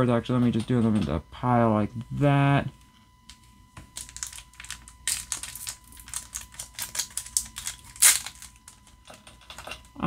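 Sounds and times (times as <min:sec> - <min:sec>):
foil pack crinkling: 0:03.9 - 0:09.5.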